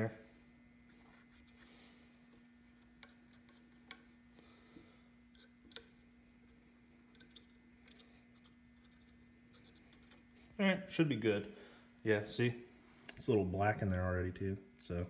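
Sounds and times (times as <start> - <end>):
steady low hum: 0.0 - 15.0
swab clicking and scraping: 0.8 - 4.4, 5.3 - 10.5.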